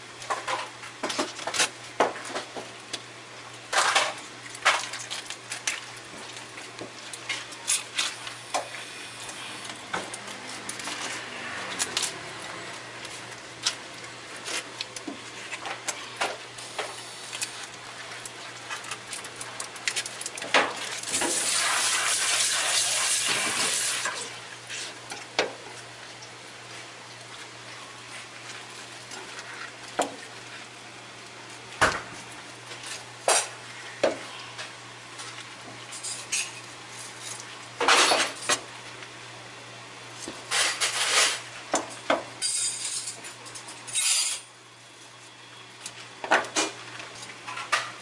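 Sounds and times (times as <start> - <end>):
water gushing: 16.5 - 26.1.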